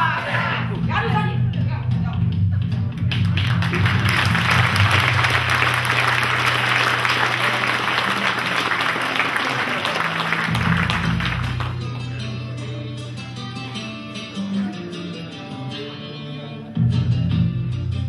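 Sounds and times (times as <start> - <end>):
music playing: 0.0 - 18.0
audience applauding: 3.0 - 11.9.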